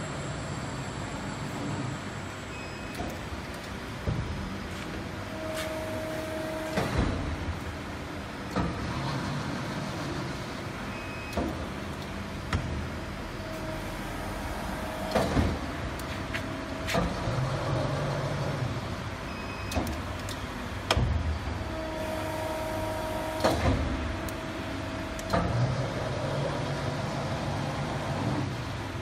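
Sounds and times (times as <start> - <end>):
sharp mechanical clicks and knocks: 2.8 - 4.4, 8.4 - 10.4, 11.2 - 12.9, 15.0 - 17.8, 19.5 - 21.3, 23.4 - 24.4, 25.1 - 26.0.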